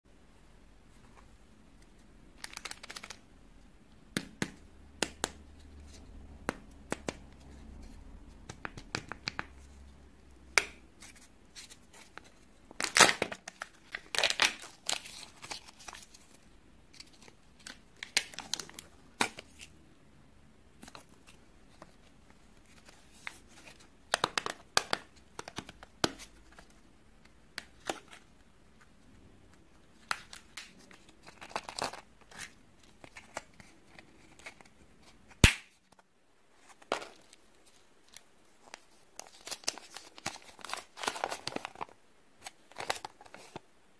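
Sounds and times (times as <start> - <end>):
wrapper crinkling and tearing: 2.4 - 3.2, 12.8 - 16.3, 37.0 - 43.6.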